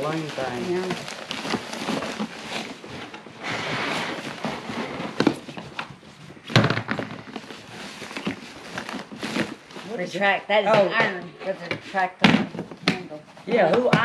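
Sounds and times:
rustling of packaged items: 0.0s - 14.0s.

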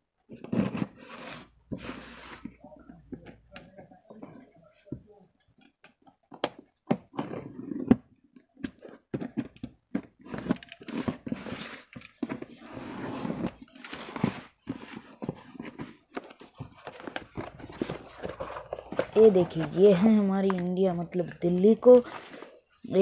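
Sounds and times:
cardboard flaps rustling: 10.2s - 20.6s.

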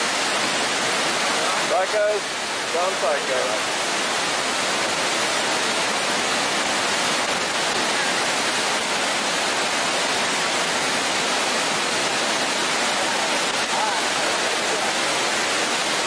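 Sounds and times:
rapids rushing over boulders: 0.0s - 16.0s.

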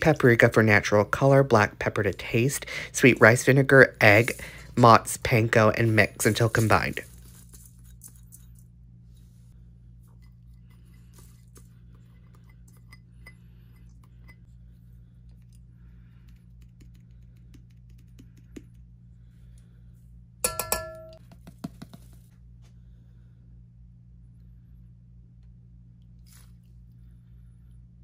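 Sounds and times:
low hum: 0.0s - 21.2s, 22.3s - 28.0s
metal clinking on steel bowl: 20.4s - 21.2s.

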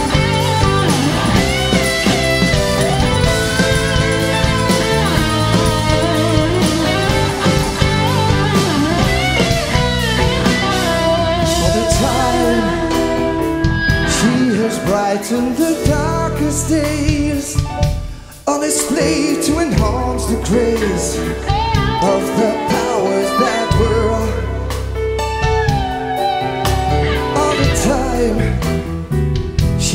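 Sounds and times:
live rock band: 0.0s - 29.9s
man singing: 11.0s - 24.8s, 27.1s - 28.9s, 29.7s - 29.9s.

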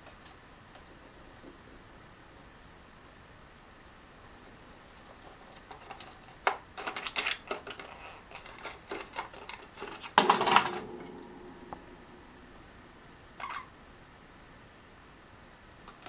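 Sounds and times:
bird pecking at ornaments: 4.4s - 10.2s.

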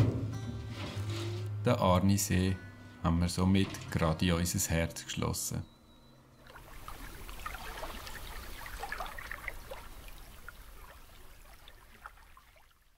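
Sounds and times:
stream trickling and babbling: 6.4s - 12.9s.

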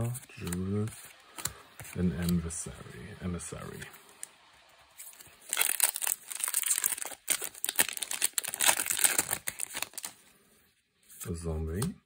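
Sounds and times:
foil wrapper crinkling and tearing: 5.0s - 10.2s.

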